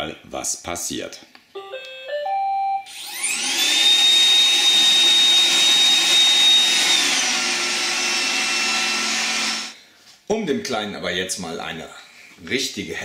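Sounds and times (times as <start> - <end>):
robot vacuum running: 2.9 - 9.8
suction motor whine: 2.9 - 9.8.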